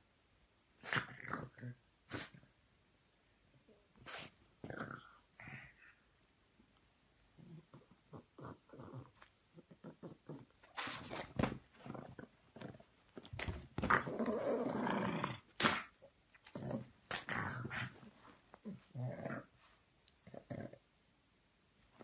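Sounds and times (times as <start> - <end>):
dog growling: 7.4 - 20.8.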